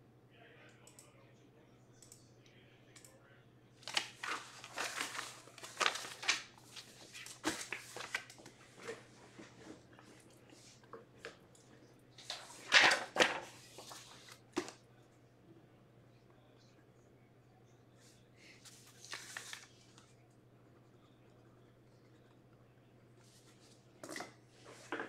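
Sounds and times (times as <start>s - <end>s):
plastic packaging crinkling: 3.8s - 9.0s.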